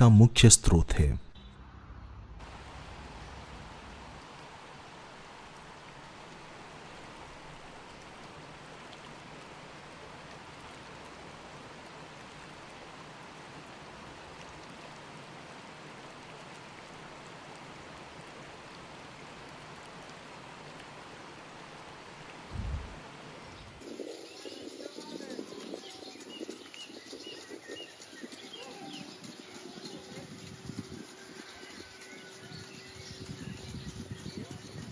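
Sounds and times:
water rushing along canal: 2.4 - 34.9.

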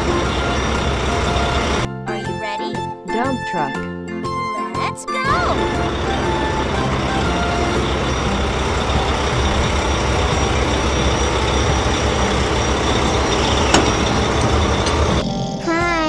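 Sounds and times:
truck engine running: 0.0 - 1.9, 5.2 - 15.6.

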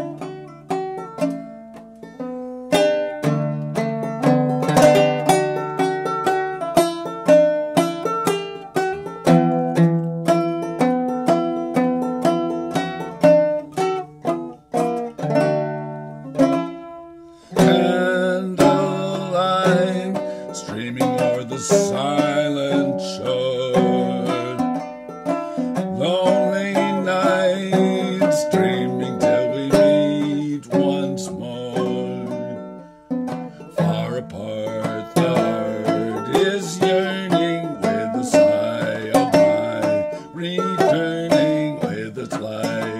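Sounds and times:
banjo plucked: 0.0 - 42.9
man singing: 17.5 - 24.8, 25.6 - 32.8, 33.6 - 42.9.

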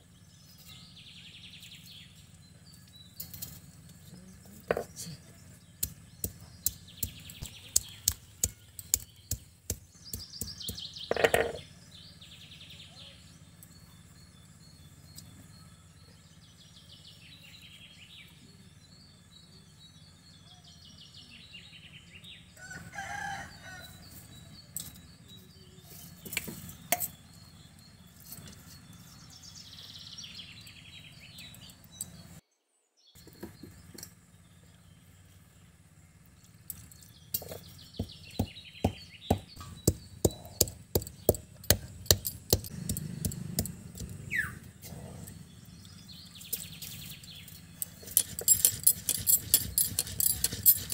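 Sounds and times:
birds chirping: 0.0 - 50.9
stone roller knocking on grinding stone: 4.7 - 5.0, 5.8 - 11.6, 37.4 - 44.2, 47.8 - 50.9.

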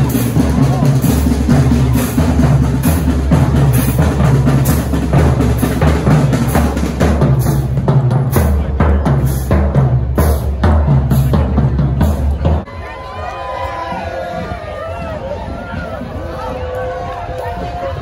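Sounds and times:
bass and snare drums beating: 0.0 - 12.7
marching band playing: 0.0 - 12.8.

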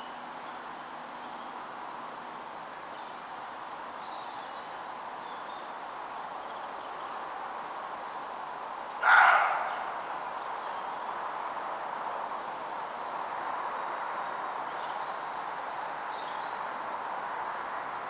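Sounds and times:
steady background hiss: 0.0 - 18.0
deer alarm bark: 9.0 - 9.8.

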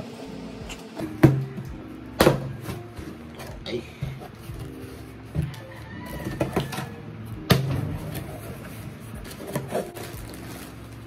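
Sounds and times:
cardboard box rustling: 8.0 - 11.0.

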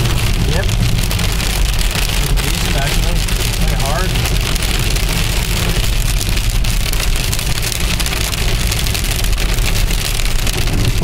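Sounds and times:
car engine and tyres rumbling: 0.0 - 11.0
rain and hail hitting car roof: 0.0 - 11.0.

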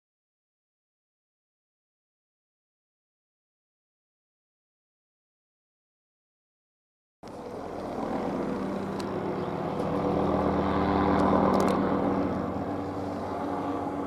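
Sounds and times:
helicopter passing overhead: 7.2 - 14.0.

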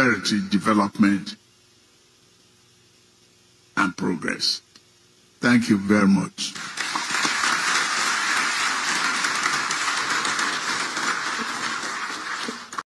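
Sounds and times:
crowd applauding: 6.5 - 12.9.

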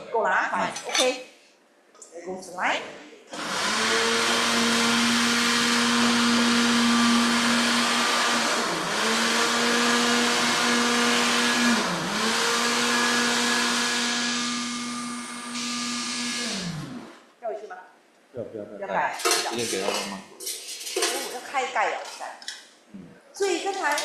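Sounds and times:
blender motor humming: 3.3 - 17.3.

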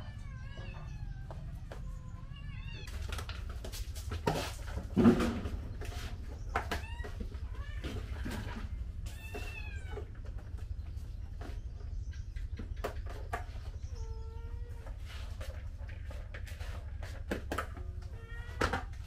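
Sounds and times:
cats meowing: 0.0 - 2.9, 6.5 - 10.3, 13.9 - 15.0, 17.8 - 19.0.

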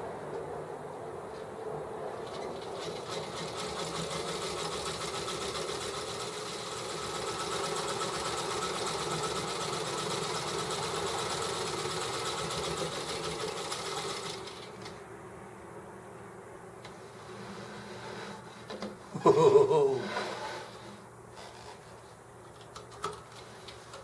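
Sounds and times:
electric sewing machine running: 2.5 - 14.8.

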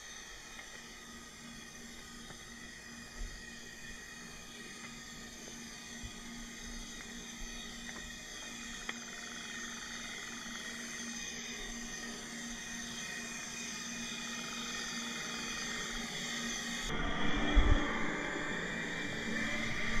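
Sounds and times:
steady underwater hum: 0.0 - 20.0.

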